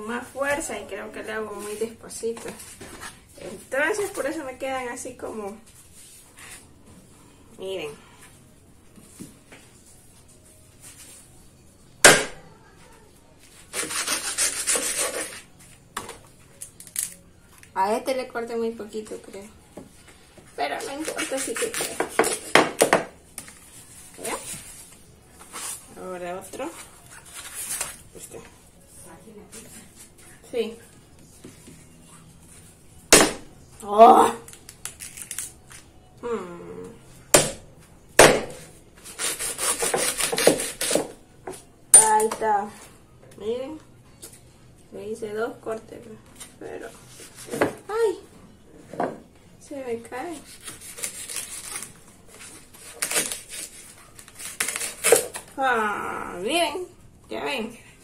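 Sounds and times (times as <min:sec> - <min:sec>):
knife sawing through corn: 0:13.7 - 0:15.4, 0:39.0 - 0:41.0, 0:50.7 - 0:51.9.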